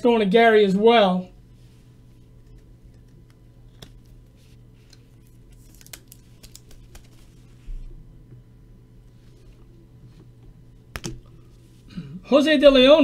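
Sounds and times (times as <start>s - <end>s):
low electrical hum: 0.0s - 13.0s
cards and plastic holders handled: 2.4s - 7.6s.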